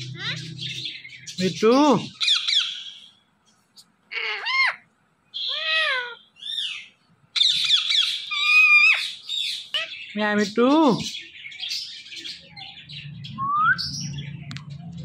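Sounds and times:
parakeet chattering: 0.0 - 3.1, 3.8 - 12.7
parakeet calling: 0.0 - 14.5.

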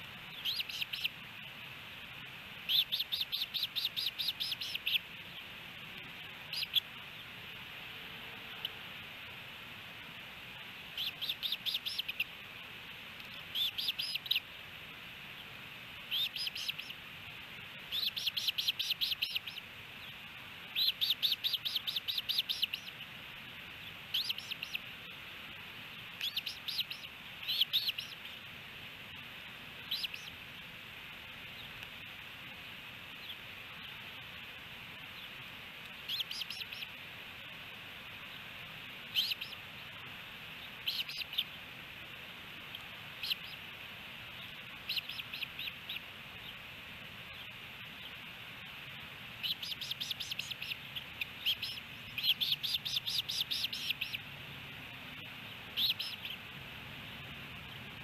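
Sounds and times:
osprey chirping: 0.2 - 1.3, 2.6 - 7.4, 10.8 - 12.6, 13.2 - 14.6, 15.3 - 17.0, 17.8 - 25.2, 25.9 - 28.4, 29.8 - 30.7, 35.1 - 37.0, 39.1 - 39.7, 40.5 - 41.6, 42.6 - 46.7, 47.3 - 58.0.

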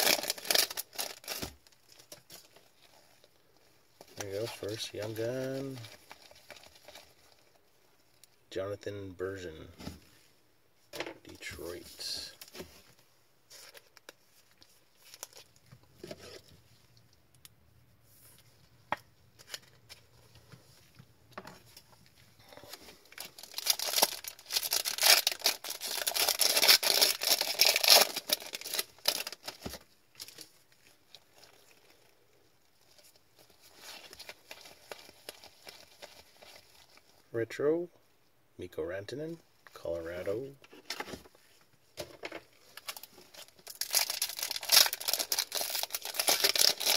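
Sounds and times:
foil wrapper tearing and crinkling: 0.0 - 2.9, 22.6 - 32.0, 33.0 - 37.0, 42.7 - 46.9.

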